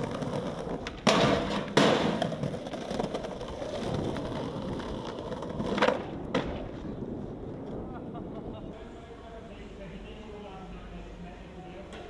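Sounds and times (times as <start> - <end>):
skateboard cracks: 0.0 - 7.9
skateboard wheels rolling on concrete: 0.0 - 12.0.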